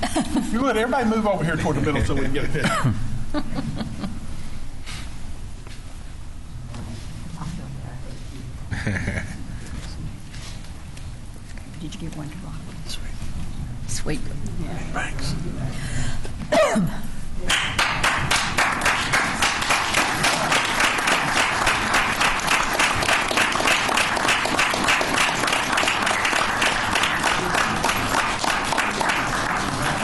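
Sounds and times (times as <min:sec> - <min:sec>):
small crowd applauding: 0:17.5 - 0:30.0.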